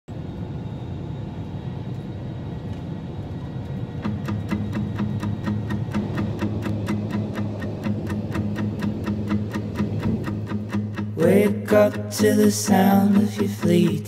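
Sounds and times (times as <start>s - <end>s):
airplane cabin drone: 0.1s - 14.0s
music with ticking beat: 4.0s - 14.0s.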